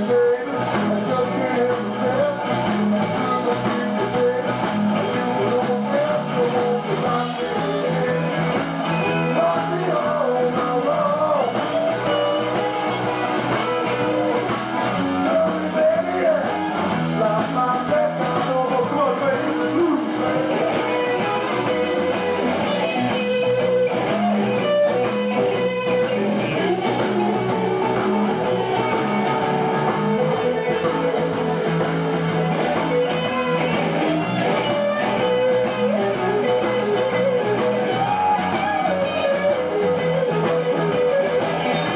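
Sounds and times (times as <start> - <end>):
drum beat: 0.0 - 41.9
electric guitar: 0.0 - 41.9
harmonica long notes: 4.2 - 41.9.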